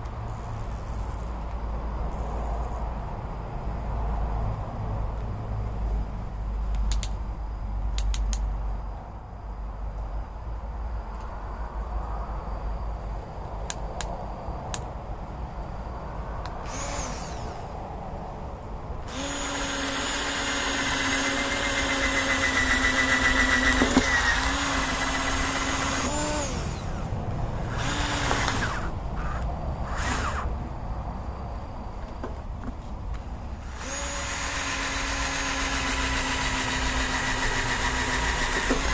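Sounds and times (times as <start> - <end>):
electric drill boring through rubber: 16.6 - 17.8, 19.1 - 30.5, 33.6 - 38.9.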